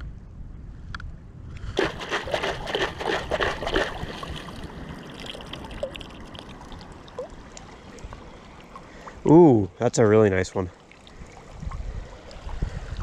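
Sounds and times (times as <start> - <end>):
boots sloshing through water: 1.8 - 6.7
stream trickling: 1.8 - 13.0.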